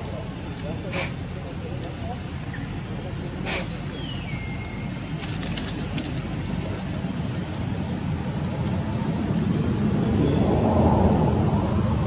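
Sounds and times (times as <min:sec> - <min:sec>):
low rumbling background noise: 0:00.0 - 0:12.0.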